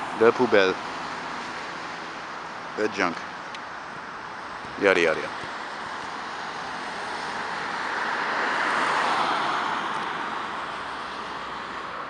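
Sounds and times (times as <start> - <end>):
car driving past: 6.2 - 12.0.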